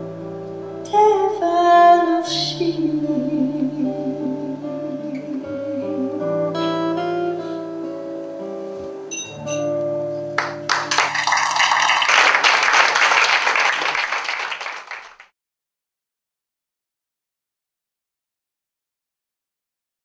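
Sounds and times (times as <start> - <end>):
acoustic guitar playing: 0.0 - 12.2
audience applause: 10.4 - 15.3.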